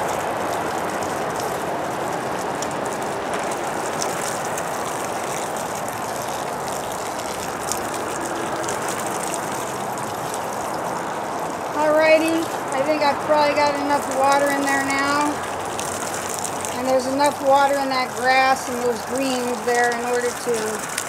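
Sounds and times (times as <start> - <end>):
hose water stream: 0.0 - 21.0.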